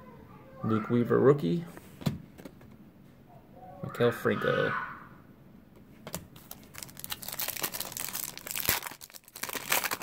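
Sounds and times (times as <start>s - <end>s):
plastic wrapper crinkling: 6.3s - 10.0s.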